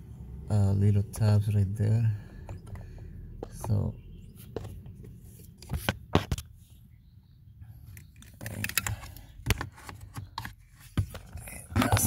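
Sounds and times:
plastic and metal clicks: 7.9 - 10.6.

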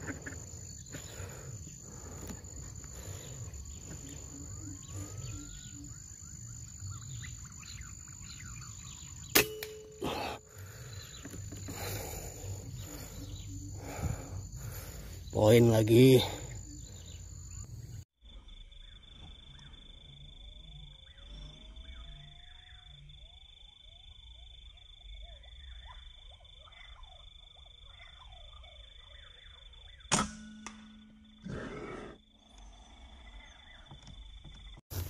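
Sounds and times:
faint bird chirps: 0.0 - 30.1, 30.8 - 34.8
high insect drone: 0.0 - 30.1.

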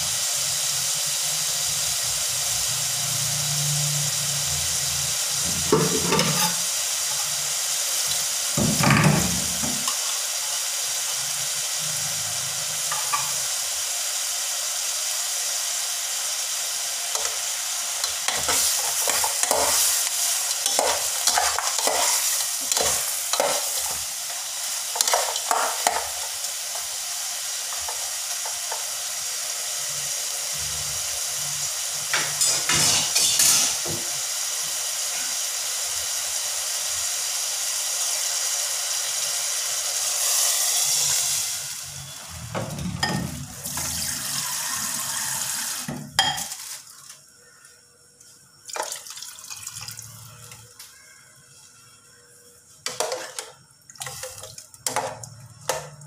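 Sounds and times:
chicken sizzling in a pot: 0.0 - 56.0
spatula scraping pot: 5.8 - 6.7, 18.3 - 24.0
water pouring into pot: 40.2 - 45.9, 48.7 - 50.7, 53.9 - 56.0.

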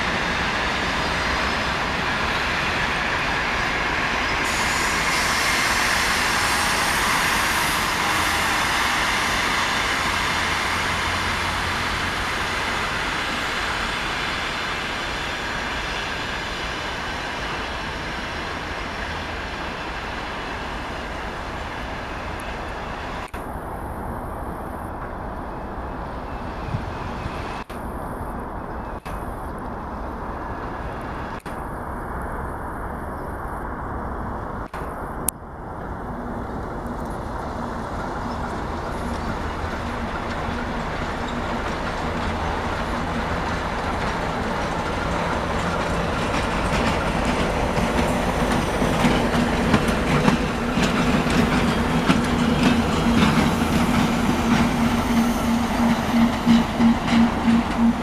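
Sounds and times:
train wheels clacking on rails: 0.0 - 23.6, 35.8 - 58.0.

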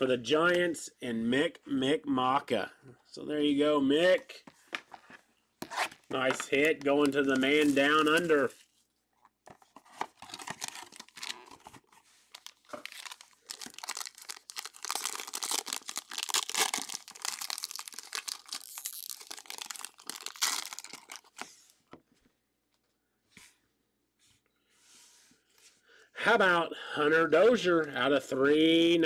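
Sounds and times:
foil wrapper crinkling and tearing: 6.8 - 8.5, 10.0 - 21.5.

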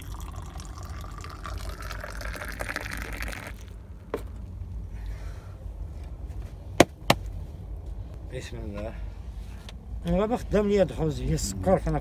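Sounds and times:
liquid pouring into container: 0.0 - 3.8
sharp knock: 6.8 - 7.3.

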